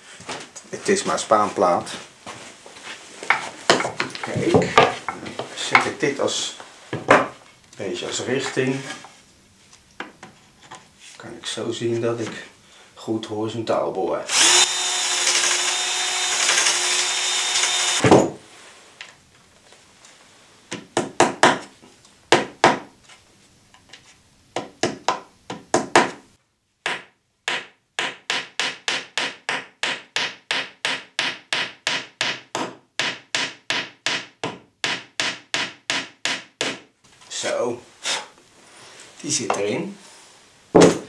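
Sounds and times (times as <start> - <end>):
cordless drill boring wood: 14.3 - 18.1
hammer knocking wooden dowel: 26.8 - 36.9.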